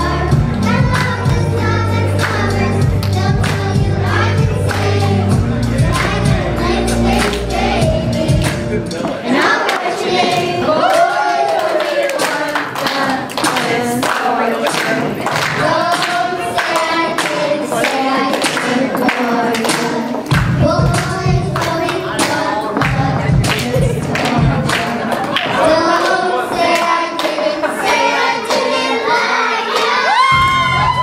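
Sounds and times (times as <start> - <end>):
bass-heavy backing track: 0.0 - 9.4, 30.2 - 31.0
girls singing into microphones: 0.0 - 31.0
hand clapping: 11.8 - 28.7.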